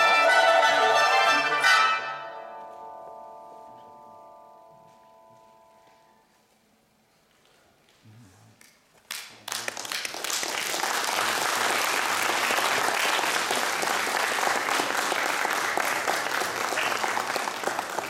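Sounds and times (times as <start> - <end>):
audience applauding: 9.0 - 18.0.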